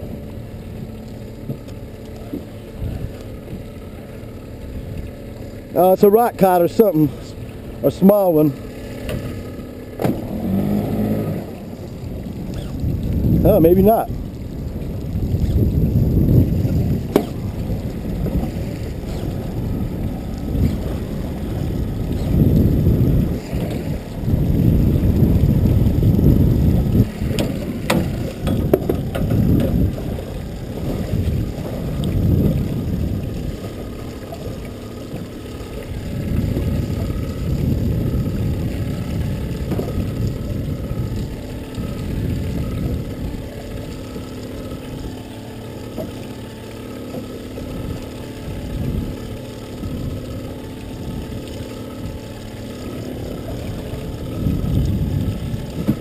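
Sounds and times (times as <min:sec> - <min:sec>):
choppy water: 0:00.0 - 0:56.0
wind buffeting microphone: 0:02.7 - 0:03.8, 0:11.4 - 0:45.7, 0:47.4 - 0:56.0.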